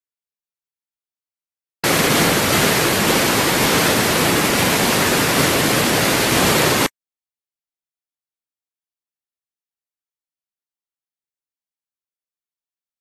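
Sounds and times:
loud static hiss: 1.8 - 6.9.

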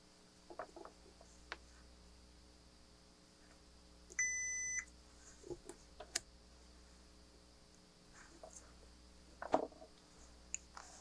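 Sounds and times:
multimeter continuity beep: 4.2 - 4.9.

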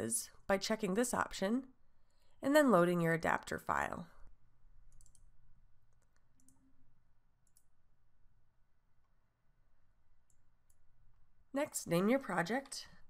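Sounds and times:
computer mouse clicks: 4.9 - 5.3, 5.9 - 6.7, 7.4 - 7.8, 10.2 - 10.8.

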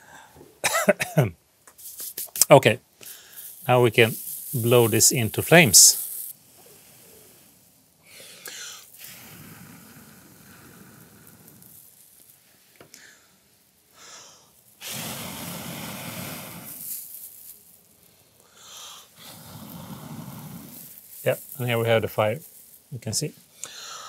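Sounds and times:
person blowing into tinder: 8.1 - 12.0, 14.0 - 17.4, 18.5 - 21.6.

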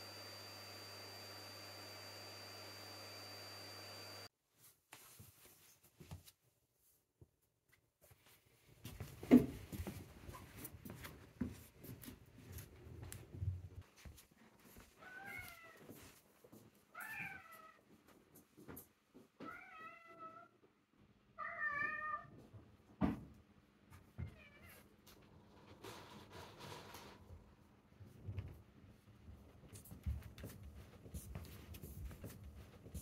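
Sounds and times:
cat meowing: 15.0 - 15.9, 17.0 - 17.8, 21.4 - 22.4.

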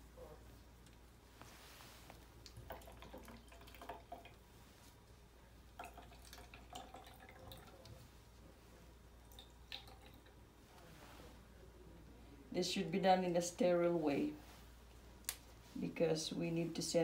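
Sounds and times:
water dripping into plastic bottle: 2.4 - 4.4, 5.7 - 8.0, 9.2 - 10.4.

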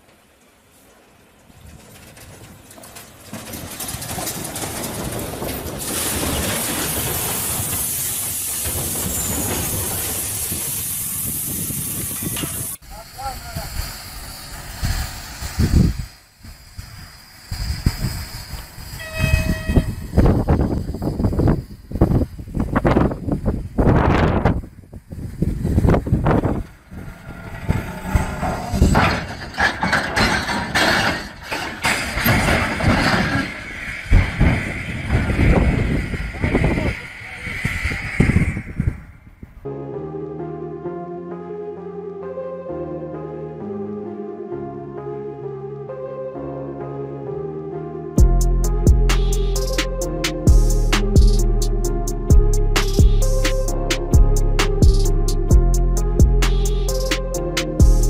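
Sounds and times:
steel wagons crashing: 0.0 - 12.8, 25.6 - 38.8
metal clanking and scraping: 1.4 - 10.8, 12.1 - 12.8, 26.3 - 38.8.

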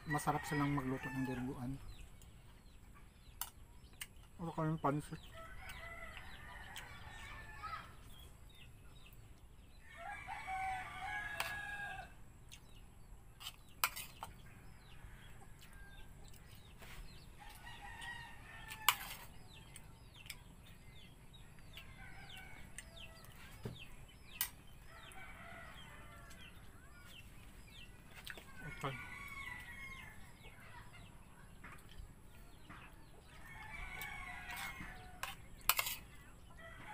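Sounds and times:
roosters crowing: 0.0 - 1.8, 5.0 - 8.0, 9.8 - 12.3, 17.2 - 19.6, 21.5 - 23.8, 24.8 - 27.2, 28.5 - 31.0, 32.6 - 36.9
small birds chirping: 0.0 - 36.9.

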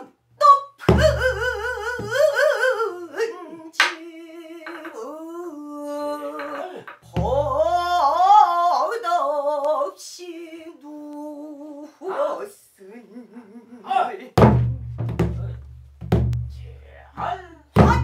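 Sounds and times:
woman singing with vibrato: 0.0 - 13.8
barrel drum crack and boom: 14.4 - 16.6.

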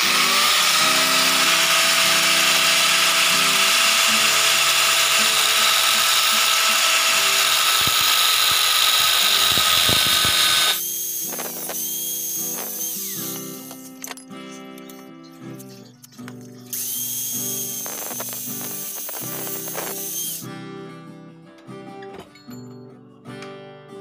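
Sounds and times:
angle grinder cutting metal: 0.0 - 14.2, 16.7 - 20.5
grinder running with high whine: 0.0 - 14.2, 16.7 - 20.5.

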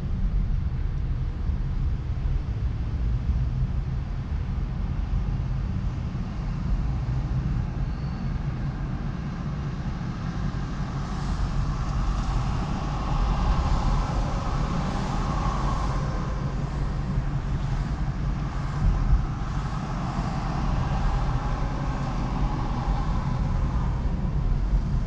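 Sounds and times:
car road and engine rumble: 0.0 - 25.0
road hiss: 10.0 - 25.0.

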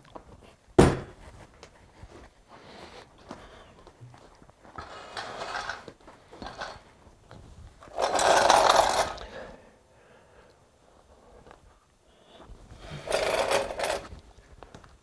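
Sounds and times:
metal frame scraping on floor: 4.8 - 6.8, 12.9 - 14.1.

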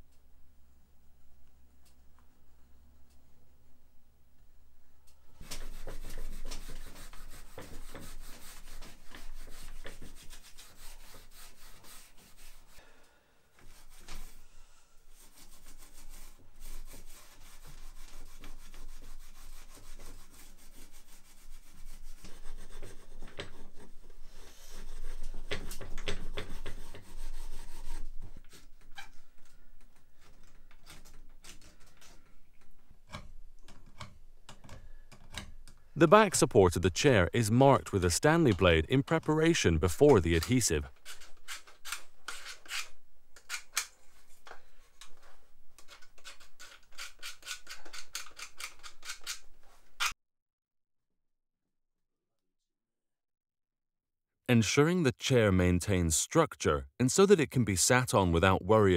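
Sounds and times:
hand sanding wood: 5.5 - 12.8, 15.2 - 28.3.

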